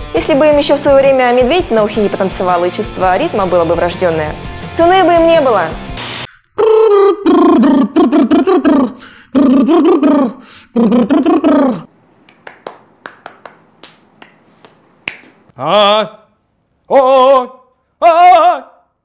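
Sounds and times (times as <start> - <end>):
man making wordless vocal sounds: 6.4 - 11.9.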